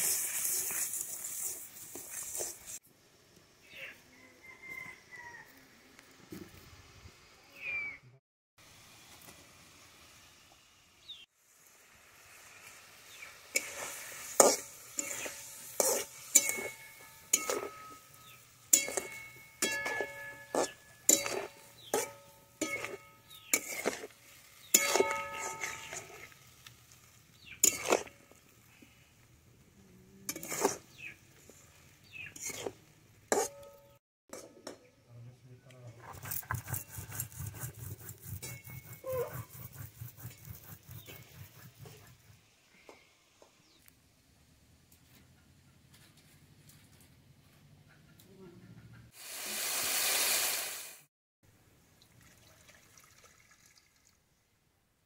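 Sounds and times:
metal spatula scraping wok: 0:00.0 - 0:02.8, 0:12.3 - 0:28.7, 0:30.2 - 0:34.8, 0:36.0 - 0:42.3
faint sizzle: 0:00.0 - 0:07.7, 0:08.6 - 0:33.3
stone scraping on stone: 0:32.3 - 0:33.6, 0:36.0 - 0:42.3
animal call: 0:38.9 - 0:39.6.

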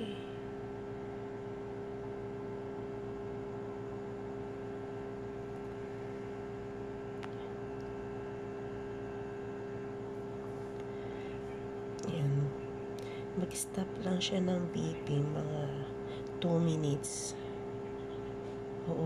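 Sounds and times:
incubator humming: 0:00.0 - 0:19.0.

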